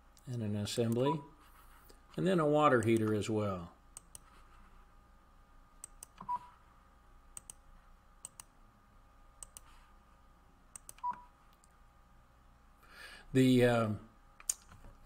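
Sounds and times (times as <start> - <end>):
computer mouse clicks: 4.0 - 4.3, 5.8 - 6.4, 7.4 - 7.6, 8.2 - 8.5, 9.4 - 9.7, 10.7 - 11.7.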